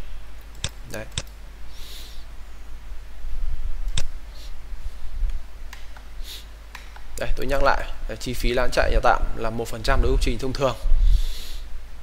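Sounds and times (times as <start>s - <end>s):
low steady hum: 0.0s - 12.0s
computer mouse clicking: 6.7s - 7.2s.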